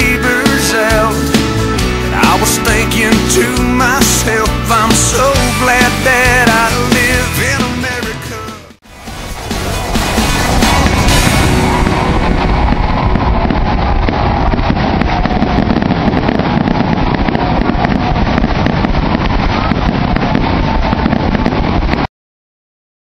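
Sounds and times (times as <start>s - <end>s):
fireworks booming and crackling: 0.0s - 7.6s, 9.0s - 22.1s
low microphone rumble: 8.9s - 22.1s.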